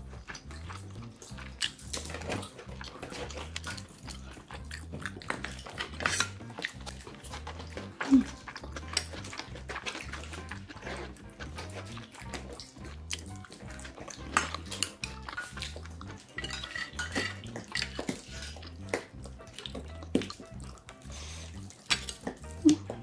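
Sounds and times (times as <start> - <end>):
chopsticks clicking on metal bowls: 5.2 - 11.0, 13.2 - 19.6, 21.8 - 22.8.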